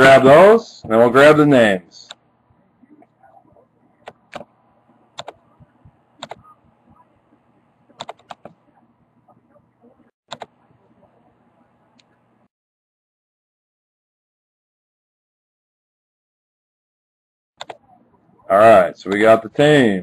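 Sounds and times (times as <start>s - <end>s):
laptop clicks: 5.1s - 5.4s, 6.2s - 6.5s, 8.0s - 8.6s.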